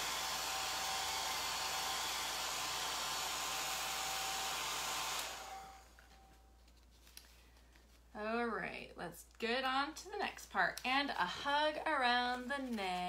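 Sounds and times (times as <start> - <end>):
hair dryer blowing: 0.0 - 6.3.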